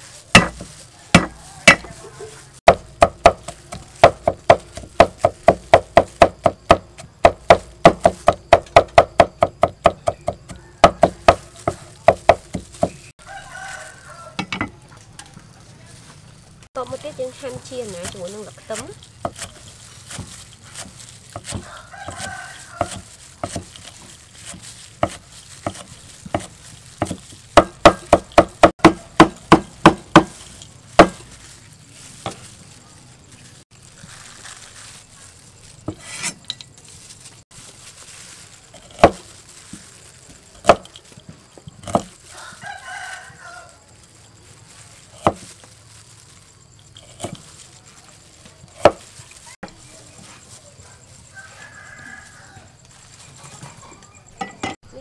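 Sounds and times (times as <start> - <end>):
cleaver chopping on wooden block: 0.4 - 1.9, 25.0 - 30.4, 31.0 - 31.2
rooster crowing: 0.7 - 2.6, 10.4 - 11.9, 13.2 - 15.4, 21.5 - 23.3, 42.2 - 44.0, 50.8 - 54.2.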